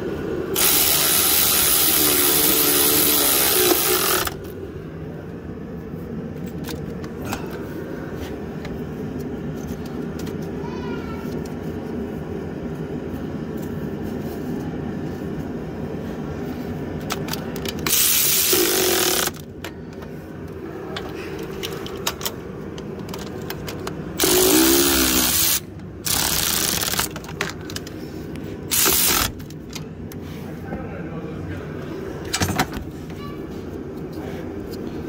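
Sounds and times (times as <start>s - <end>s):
low steady hum: 0.0s - 35.0s
power tool spinning bolts: 0.5s - 4.5s, 17.8s - 19.5s, 24.2s - 27.3s, 28.7s - 29.5s
tool clicking on bolts: 0.6s - 4.4s, 17.1s - 19.5s, 23.0s - 27.6s, 28.7s - 29.8s.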